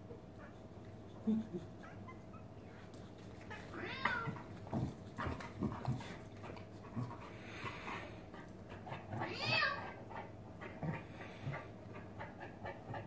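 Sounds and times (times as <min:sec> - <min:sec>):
dog panting: 0:00.2 - 0:13.0
cat yowl: 0:09.2 - 0:09.9.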